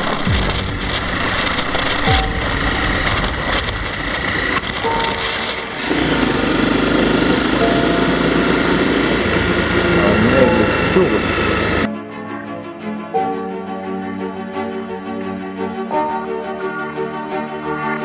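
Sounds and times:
motorcycle engine running: 0:00.0 - 0:11.9.

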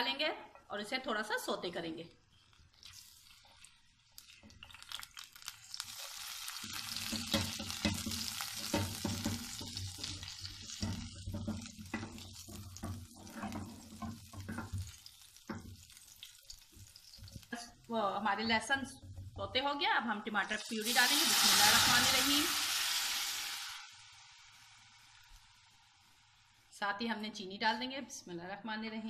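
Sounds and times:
garlic sizzling in oil: 0:02.4 - 0:26.8
spatula scraping a pan: 0:06.7 - 0:17.5.

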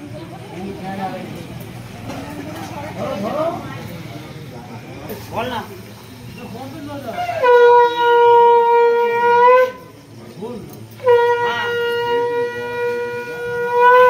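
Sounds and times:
conch shell blown: 0:07.1 - 0:10.1, 0:11.0 - 0:14.0.

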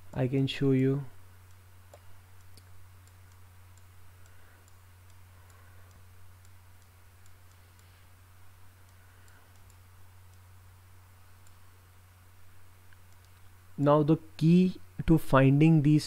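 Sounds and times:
low electrical hum: 0:00.0 - 0:16.0
computer mouse clicks: 0:01.5 - 0:08.0, 0:08.8 - 0:10.5, 0:11.4 - 0:11.6, 0:12.9 - 0:13.5.

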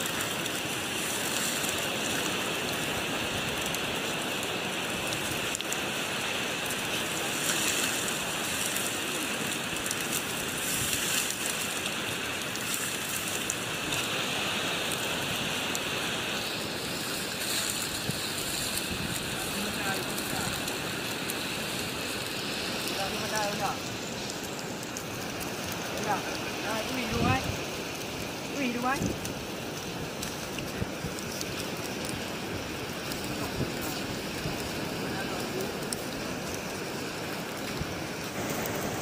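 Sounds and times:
water hissing: 0:00.0 - 0:39.0.

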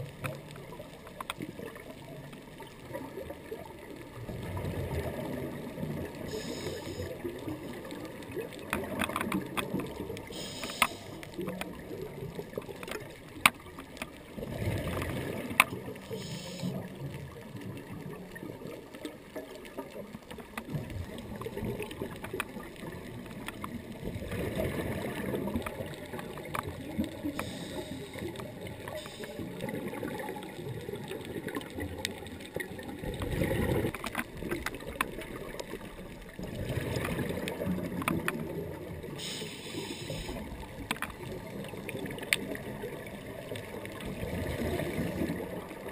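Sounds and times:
underwater bubbles gurgling: 0:00.0 - 0:45.9
sharp clicks: 0:10.4 - 0:11.7.

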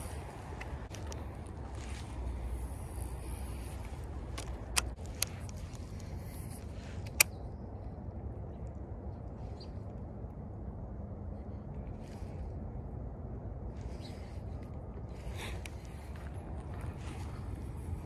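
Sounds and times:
wind rumble on microphone: 0:00.0 - 0:18.0
fishing rod and reel clicks: 0:02.8 - 0:07.4.

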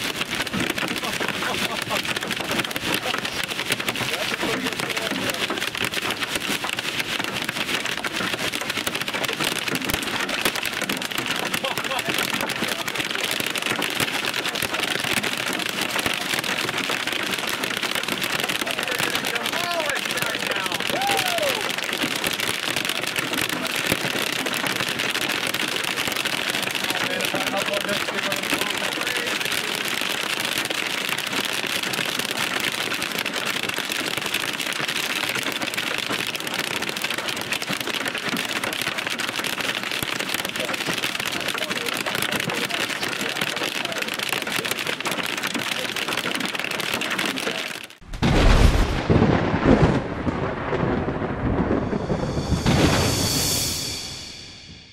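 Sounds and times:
heavy rain on car roof: 0:00.0 - 0:54.0.

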